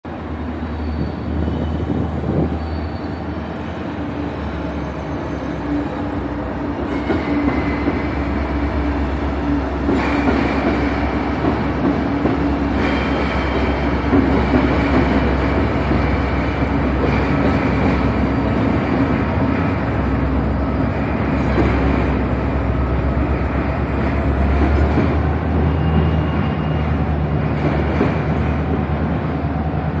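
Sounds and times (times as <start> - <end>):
diesel locomotive drone: 0.0 - 30.0
train wheels on rails: 0.1 - 30.0
high wheel squeal: 0.6 - 6.1, 25.4 - 27.2.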